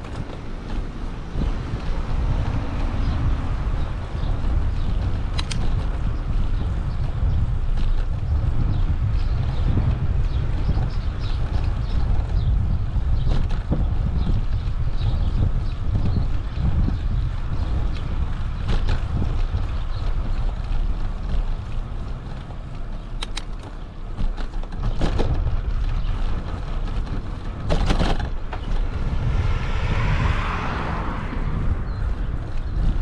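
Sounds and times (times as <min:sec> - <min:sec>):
tyres rumbling on pavement: 0:00.0 - 0:33.0
wind buffeting microphone: 0:00.0 - 0:33.0
bike knocking over pavement joints: 0:15.3 - 0:29.0.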